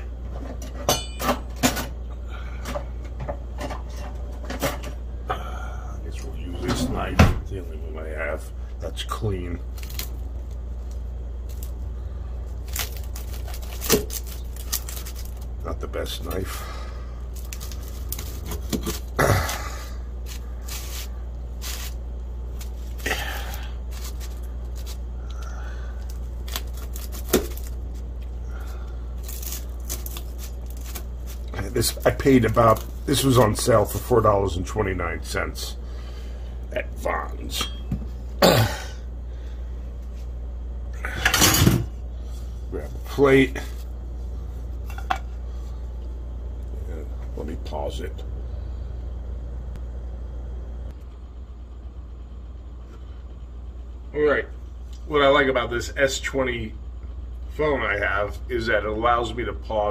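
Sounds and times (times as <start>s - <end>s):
steady low hum: 0.0s - 59.9s
pizza crust crackling: 9.2s - 34.4s.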